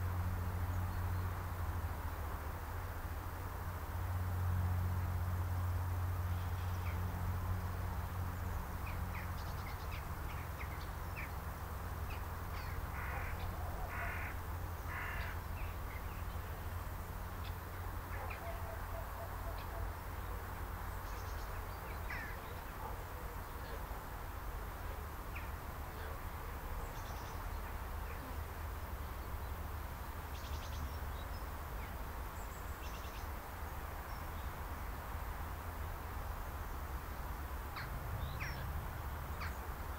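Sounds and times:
harsh bird calls: 12.1s - 16.2s.

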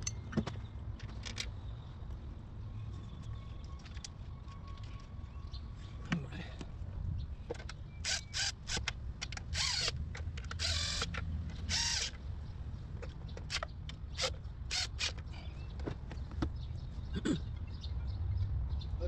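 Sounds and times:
cordless impact tool bursts: 8.0s - 8.9s, 9.5s - 12.1s.

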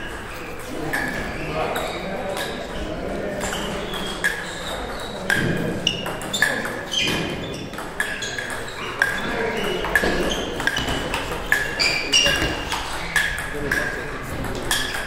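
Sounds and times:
table tennis ball clicks: 9.8s - 15.0s.

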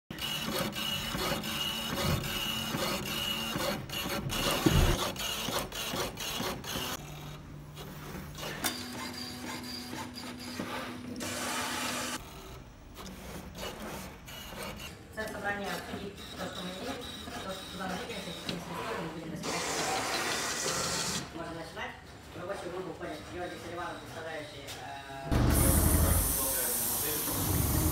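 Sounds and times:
printer motor whine: 0.1s - 7.4s.

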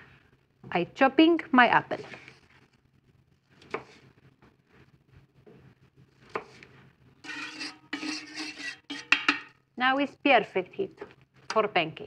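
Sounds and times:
steady rasping noise: 7.2s - 9.3s.

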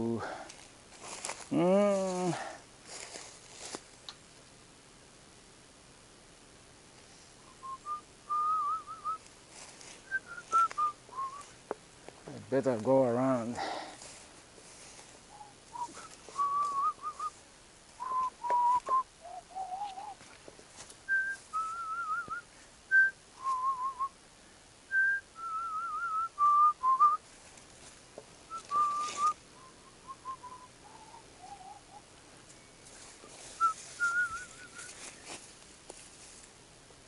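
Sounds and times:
person whistling a slow tune: 7.5s - 9.2s, 10.1s - 11.5s, 15.3s - 17.3s, 18.0s - 20.2s, 21.1s - 24.1s, 24.9s - 27.2s, 28.5s - 32.0s, 33.6s - 35.0s.

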